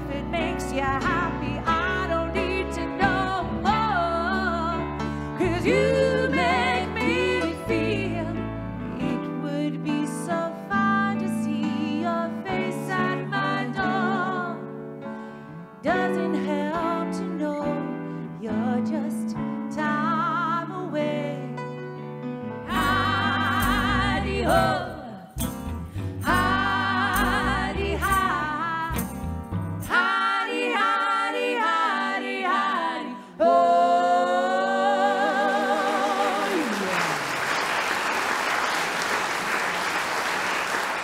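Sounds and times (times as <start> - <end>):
bass: 0.0 - 36.6
piano: 0.0 - 41.0
woman singing with vibrato: 15.8 - 21.5, 22.7 - 25.3, 29.9 - 36.8
guitar: 21.0 - 30.0
audience applause: 36.2 - 41.0.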